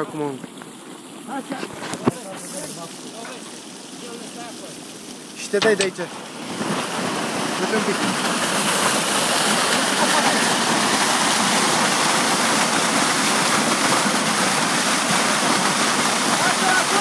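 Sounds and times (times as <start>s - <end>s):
water gushing into a lake: 0.0s - 17.0s.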